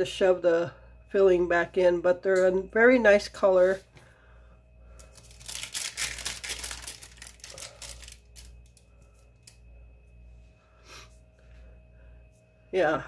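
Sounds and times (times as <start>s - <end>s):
parchment paper crinkling: 5.0s - 9.6s.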